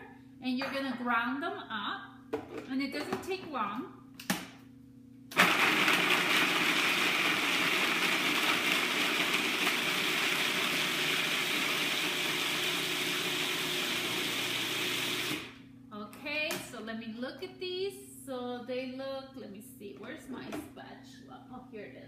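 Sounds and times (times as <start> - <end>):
food processor grinding nuts: 5.3 - 15.6.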